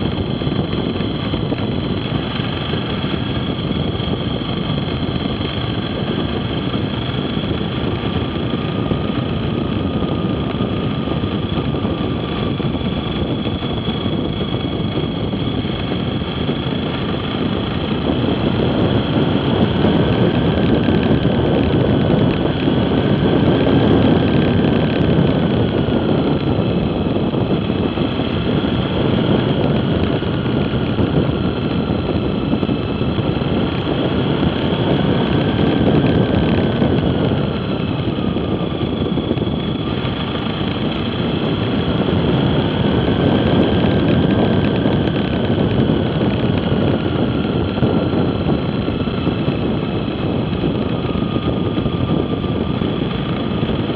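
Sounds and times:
faint whine: 0.0 - 53.9
vehicle engine and road noise: 0.0 - 53.9.

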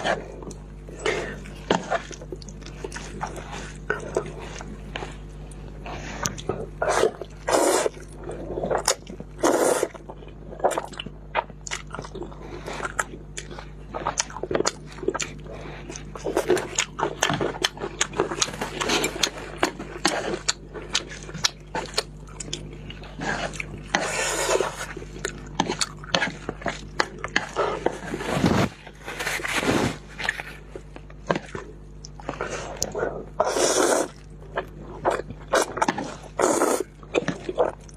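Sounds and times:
chewing: 0.0 - 37.9
slurping noodles: 5.8 - 10.0, 15.5 - 22.0, 22.7 - 31.5, 32.2 - 37.8.

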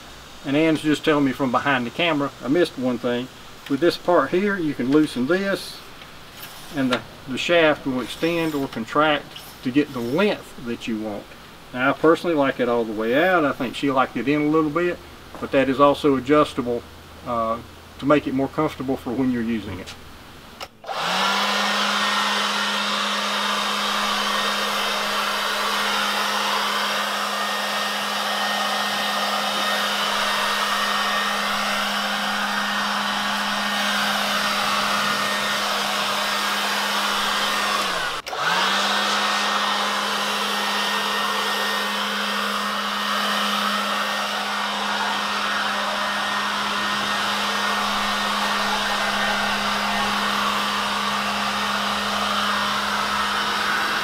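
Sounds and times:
leaf blower whine and rushing air: 20.8 - 54.0.

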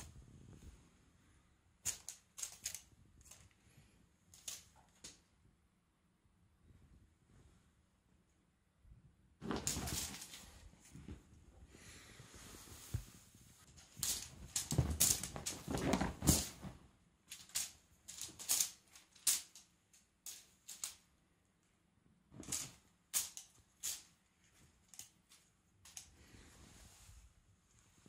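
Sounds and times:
cat pouncing on sofa: 14.1 - 16.8.

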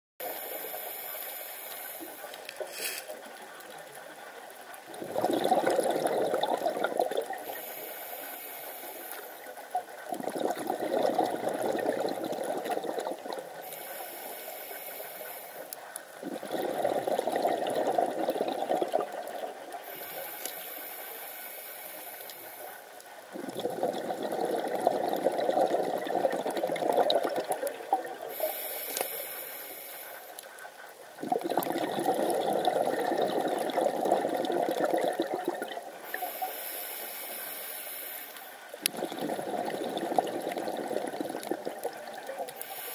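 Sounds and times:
regulator inhale hiss: 0.2 - 3.2, 7.4 - 9.7, 13.6 - 15.8, 19.8 - 23.0, 28.3 - 30.5, 36.0 - 38.7, 42.5 - 42.9
rush of exhaled bubbles: 4.9 - 7.6, 9.7 - 13.6, 16.2 - 20.2, 23.3 - 28.5, 31.2 - 36.4, 38.8 - 42.6.

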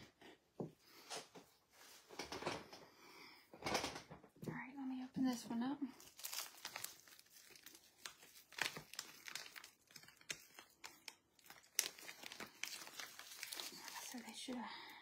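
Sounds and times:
plastic bag crinkling: 5.3 - 14.7.

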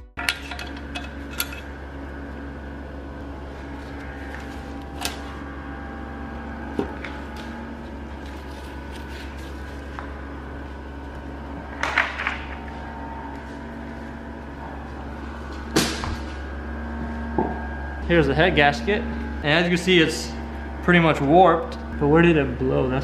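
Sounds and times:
low mechanical hum: 0.0 - 23.0
metal clinks and knocks: 0.2 - 1.7.

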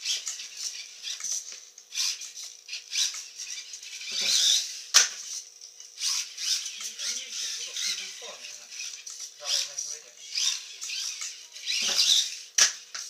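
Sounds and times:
toy car motor whirring: 0.0 - 13.0
toy car rattling on tiles: 0.0 - 13.0.

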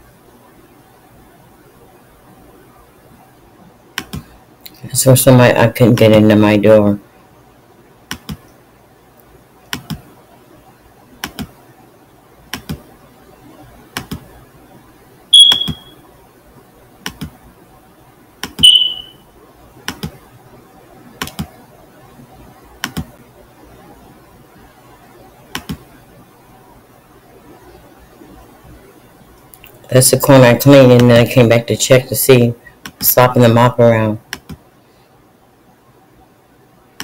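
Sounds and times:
short high-pitched beeps: 15.3 - 16.0, 18.6 - 19.2.

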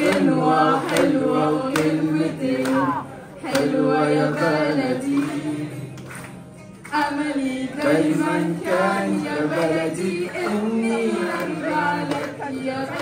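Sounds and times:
choir singing: 0.0 - 5.8, 7.0 - 13.0.

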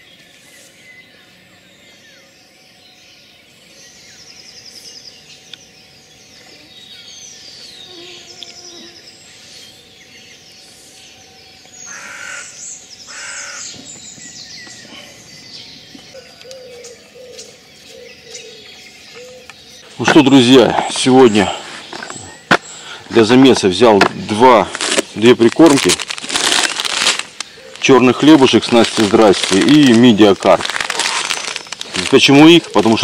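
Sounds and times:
birds singing and chirping: 0.0 - 33.0
loud harsh bird calls: 11.8 - 33.0.

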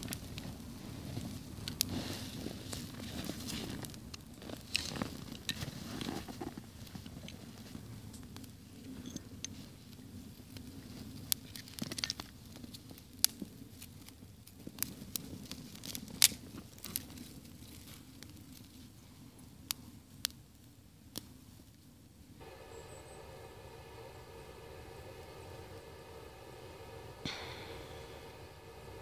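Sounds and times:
fire crackling: 0.0 - 8.7, 10.2 - 18.8, 22.4 - 29.0
low rushing noise: 22.4 - 29.0.

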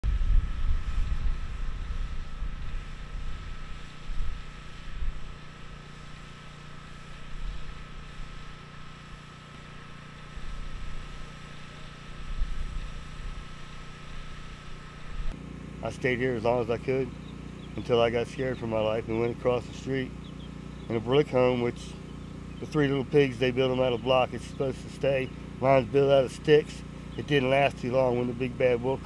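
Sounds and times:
wind buffeting microphone: 0.0 - 5.3
steady low hum: 0.0 - 29.0.

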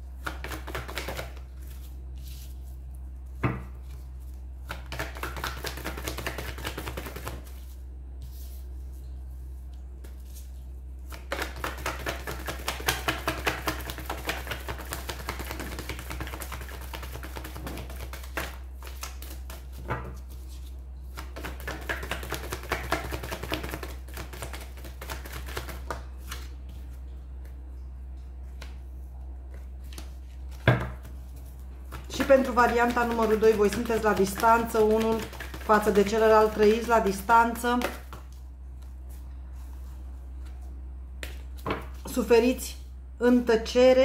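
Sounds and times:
steady low hum: 0.0 - 44.0
cards being shuffled: 0.2 - 2.8, 3.8 - 8.6, 10.0 - 26.9, 29.5 - 36.7.

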